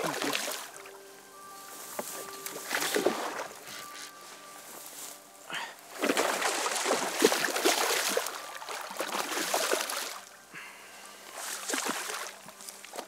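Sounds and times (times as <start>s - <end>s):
fish splashing in water: 2.6s - 3.6s, 5.9s - 10.3s, 11.5s - 13.0s.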